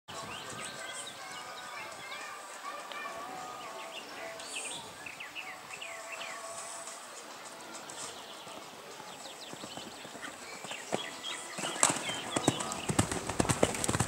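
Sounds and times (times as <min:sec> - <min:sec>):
horse hooves cantering on sand: 0:06.8 - 0:14.0.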